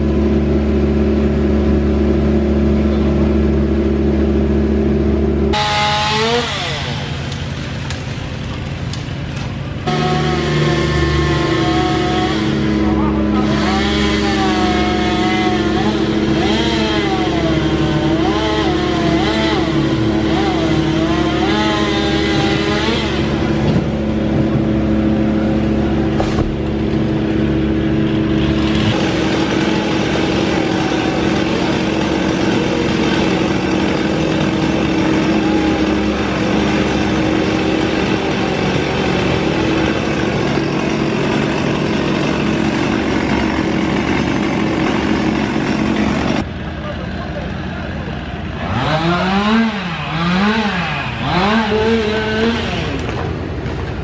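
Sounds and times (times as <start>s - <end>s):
machinery engine running: 0.0s - 54.0s.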